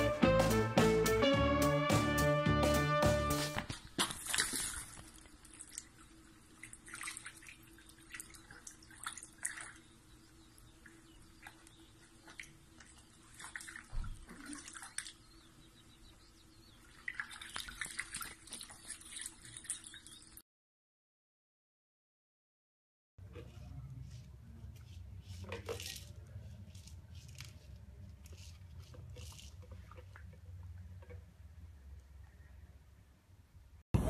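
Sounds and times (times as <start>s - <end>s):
dog splashing in puddle: 3.6s - 6.0s, 6.6s - 9.9s, 11.4s - 15.2s, 17.0s - 20.3s.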